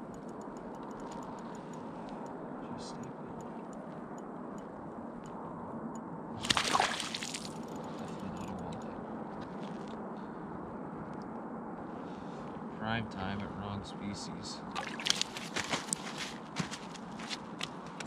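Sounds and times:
water splashing in ice hole: 6.4s - 7.6s, 14.7s - 15.5s.

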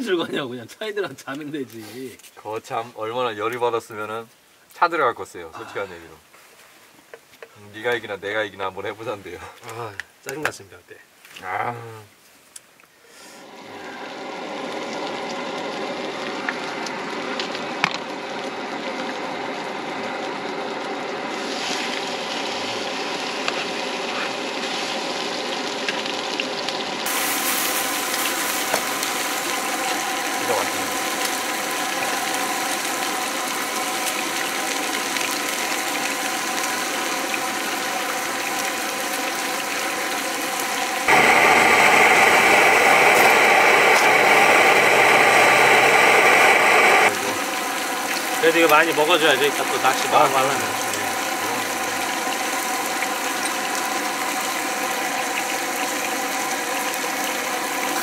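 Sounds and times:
broth bubbling and sizzling in pan: 13.0s - 58.0s
thick sauce boiling in metal pot: 13.4s - 58.0s.

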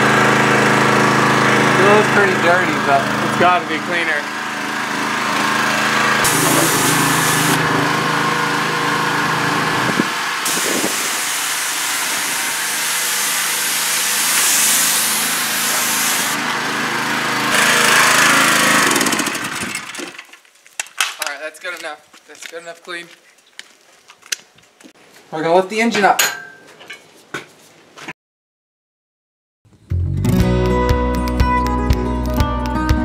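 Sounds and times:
small engine humming: 0.0s - 20.3s
high-pressure water spray hiss: 6.2s - 7.7s, 10.1s - 16.4s.

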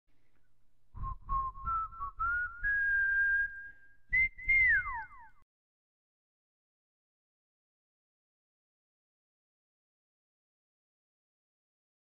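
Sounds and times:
whistled tune: 1.0s - 5.4s.

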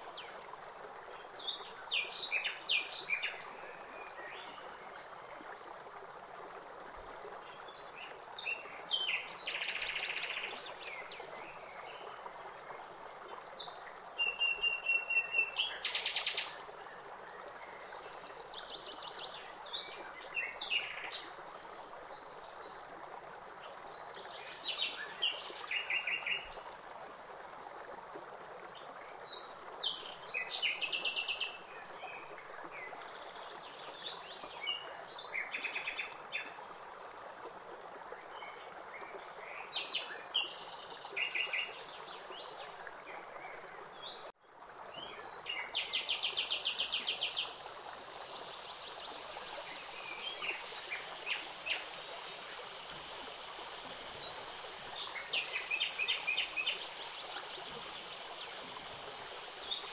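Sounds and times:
steady rushing hiss: 46.9s - 59.9s.

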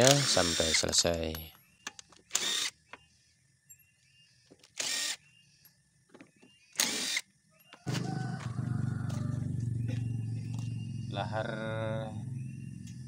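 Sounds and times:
cordless drill whirring: 0.0s - 0.8s, 2.3s - 2.8s, 4.7s - 5.2s, 6.8s - 7.3s
steady low hum: 8.0s - 13.0s.

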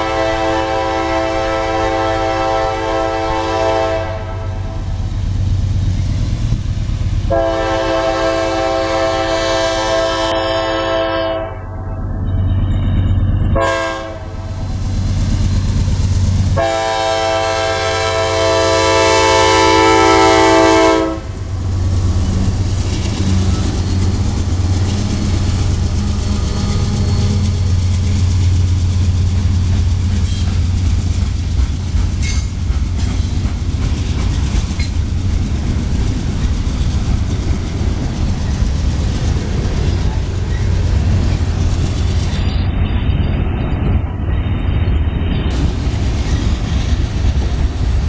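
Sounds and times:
locomotive horn blast: 0.0s - 4.9s, 7.3s - 11.8s, 13.6s - 14.6s, 16.6s - 21.5s
train rumbling past: 0.0s - 48.0s.

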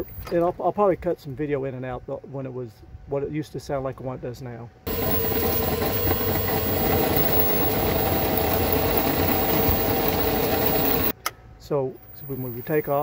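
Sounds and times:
golf cart transaxle rattling: 4.9s - 11.1s.

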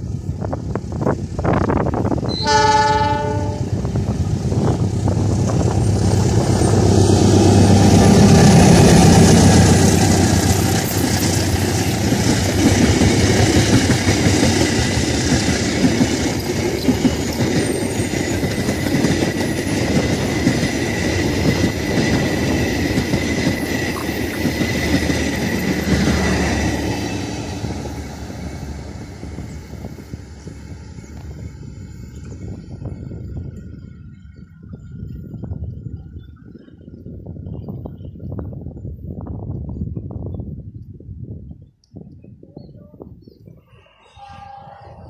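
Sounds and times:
train passing: 0.0s - 39.4s, 43.8s - 45.0s
wagons clacking over rail joints: 5.3s - 26.5s.

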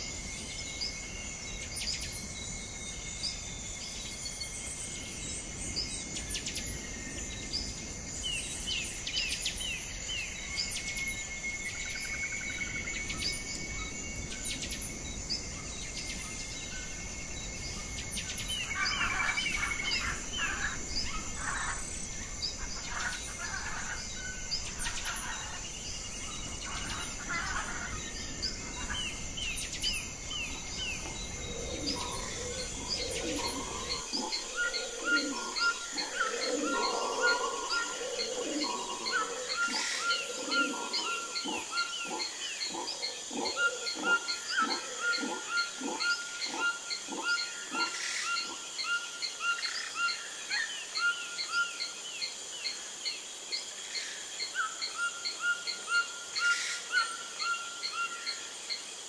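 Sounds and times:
insect drone: 0.0s - 59.0s
birds chirping: 7.4s - 48.6s.

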